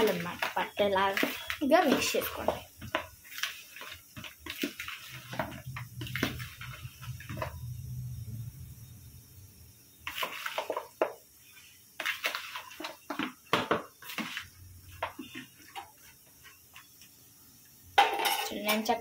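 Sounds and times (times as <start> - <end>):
low steady hum: 5.4 - 9.8
spoon and lid clinking on pot: 18.0 - 18.8.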